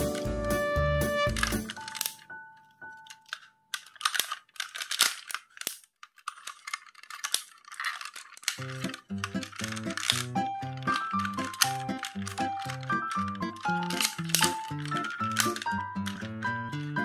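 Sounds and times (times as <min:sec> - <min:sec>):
background music: 0:00.0 - 0:03.2, 0:08.7 - 0:17.0
plastic toy clicking and snapping: 0:01.2 - 0:17.0.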